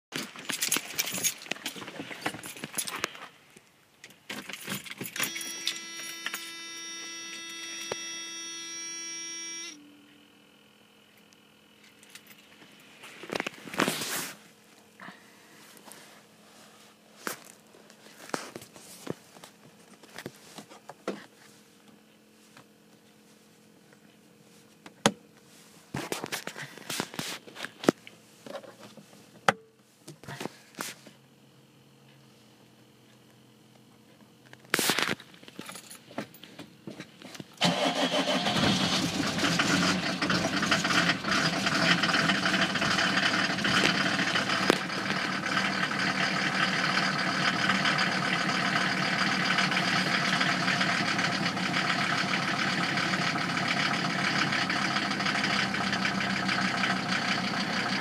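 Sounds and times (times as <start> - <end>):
keys jangling: 0.2 - 1.5
faint steady hum: 0.2 - 39.4
steady electrical whine: 0.2 - 55.1.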